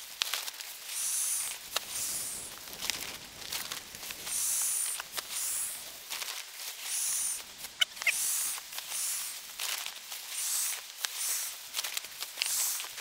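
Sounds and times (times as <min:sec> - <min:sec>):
fabric crinkle: 0:01.5 - 0:04.3
air hissing through valve: 0:04.2 - 0:05.9, 0:06.9 - 0:09.4.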